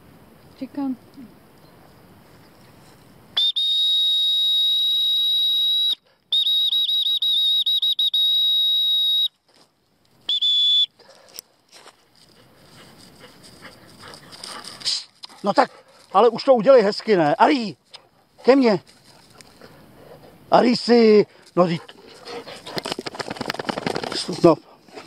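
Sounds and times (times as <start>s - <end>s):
dog whistle blasts: 3.4s - 9.3s, 10.3s - 10.9s.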